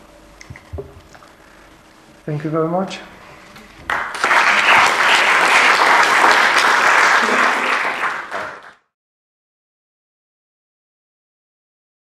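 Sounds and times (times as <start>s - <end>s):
audience applauding: 3.9s - 8.9s.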